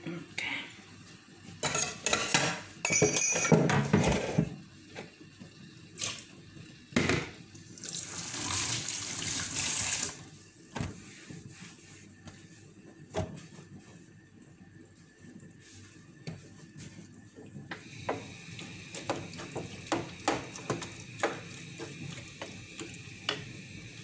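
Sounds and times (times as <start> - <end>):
pots and utensils clattering: 1.6 - 4.6
tap water running into sink: 7.1 - 10.2, 17.8 - 24.0.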